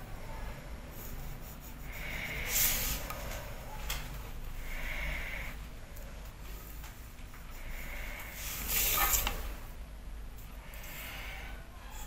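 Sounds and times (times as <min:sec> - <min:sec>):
pencil scratching on paper: 0:00.8 - 0:03.2.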